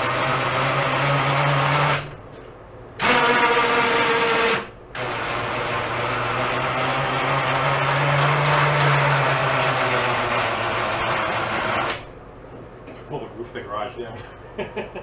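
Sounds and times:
electric motor running under load: 3.0s - 12.1s.

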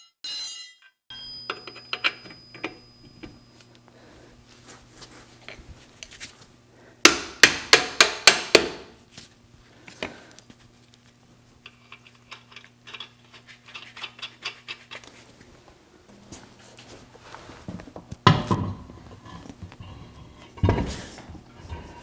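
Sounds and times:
tools clicking and rattling: 11.6s - 15.1s.

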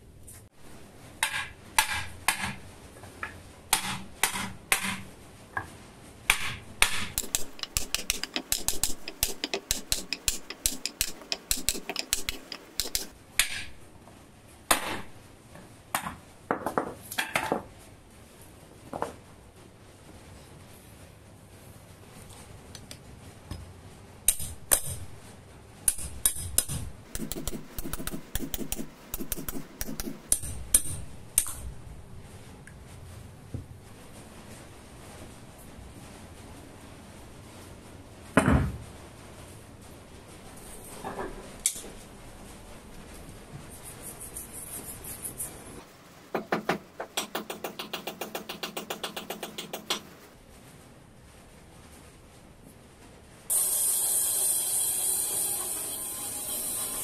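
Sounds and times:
sharp evenly spaced clicks: 7.2s - 13.2s, 25.9s - 31.6s, 47.2s - 50.3s
toothbrush scrubbing metal: 7.2s - 13.2s, 27.0s - 30.4s, 47.2s - 50.2s.

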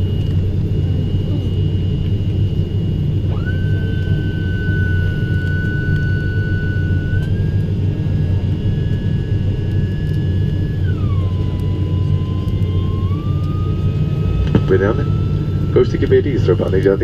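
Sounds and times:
turboprop engines droning: 0.0s - 17.0s.

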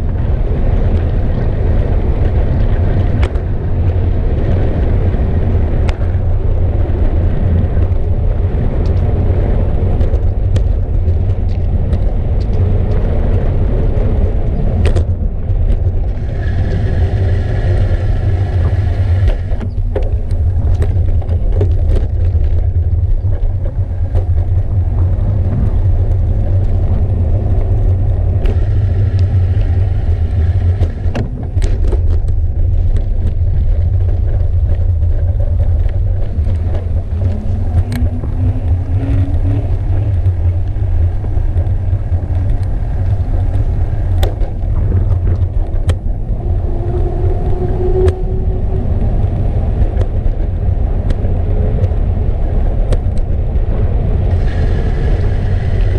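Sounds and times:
wind and road rumble: 0.0s - 55.9s
bicycle clicks and knocks: 7.6s - 13.6s, 18.6s - 28.6s, 30.6s - 52.0s.

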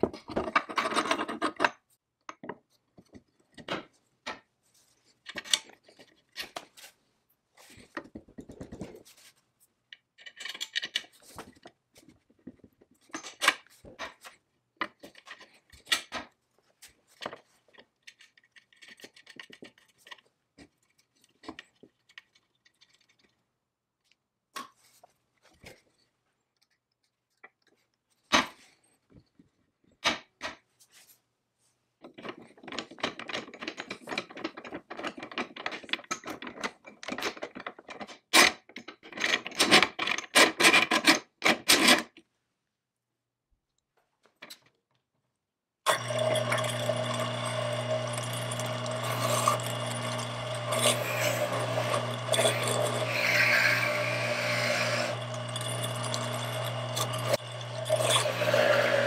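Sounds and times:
metal parts clicking and knocking: 0.1s - 2.5s, 9.9s - 11.4s, 17.2s - 23.4s, 32.1s - 42.2s.

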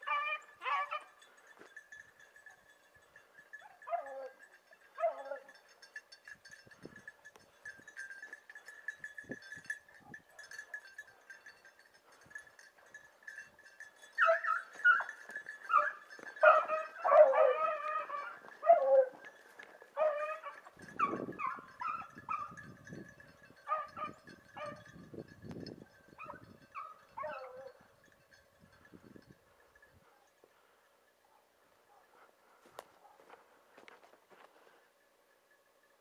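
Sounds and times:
dogs baying in chorus: 0.0s - 1.7s, 2.4s - 5.6s, 14.0s - 22.7s, 23.6s - 24.9s, 26.2s - 27.9s.

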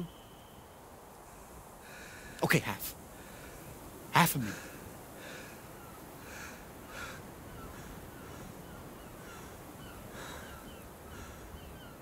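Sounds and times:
faint birds chirping: 0.0s - 12.0s
harsh bird calls: 5.2s - 12.0s.

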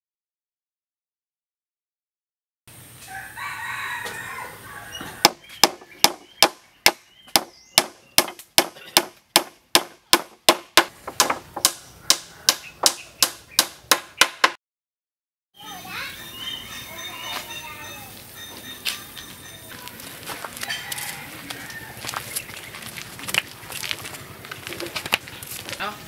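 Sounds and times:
hammer driving nail into wood: 5.2s - 14.6s.

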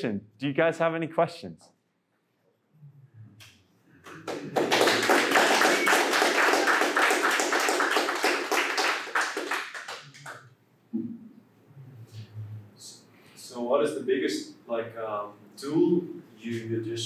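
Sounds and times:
audience applauding: 4.0s - 10.5s.

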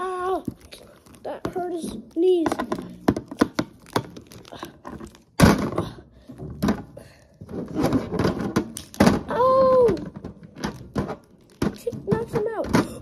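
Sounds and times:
plastic toy figures knocking: 7.6s - 13.0s.

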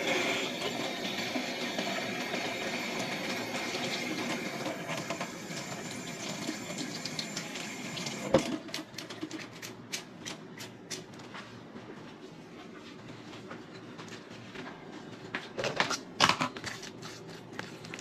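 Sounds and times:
faucet running into sink: 0.0s - 8.6s.

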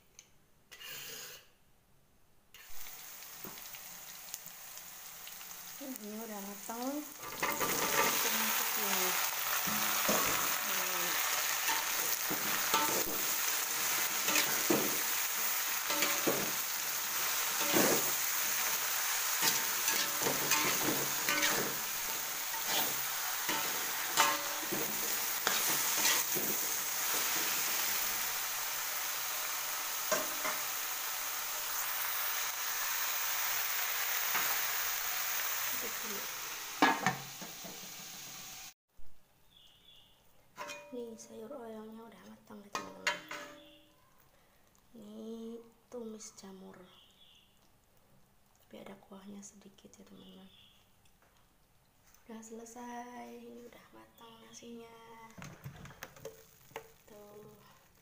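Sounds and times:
vegetables sizzling in a wok: 2.6s - 38.8s, 40.6s - 49.2s, 52.2s - 58.0s
metal spatula scraping wok: 7.2s - 8.4s, 11.2s - 28.3s, 40.6s - 40.9s, 42.8s - 43.7s.

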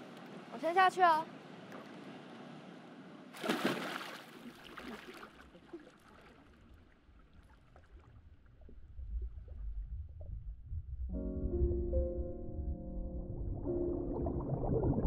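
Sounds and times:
person splashing into pool: 3.4s - 6.4s
water sloshing and lapping: 3.4s - 9.6s
low rumble: 8.1s - 15.0s.

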